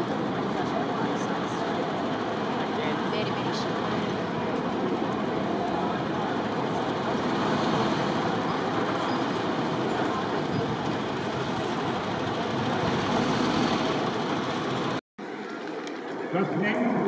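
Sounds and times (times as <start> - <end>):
road traffic: 0.0 - 17.0
train on elevated track: 0.0 - 17.0.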